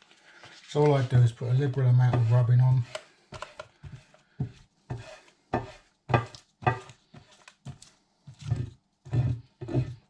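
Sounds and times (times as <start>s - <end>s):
hand rubbing on griddle: 0.7s - 2.9s.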